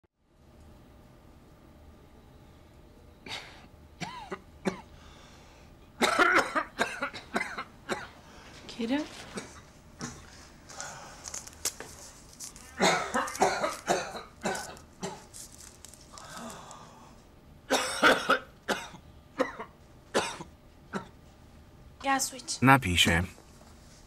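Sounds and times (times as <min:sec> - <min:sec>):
man coughing: 0:03.3 - 0:04.9, 0:06.0 - 0:08.2, 0:12.7 - 0:15.2, 0:17.7 - 0:21.1.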